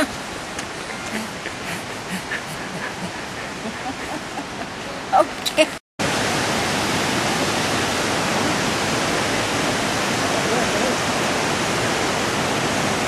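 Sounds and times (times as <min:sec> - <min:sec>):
waterfall rushing: 0:00.0 - 0:13.0.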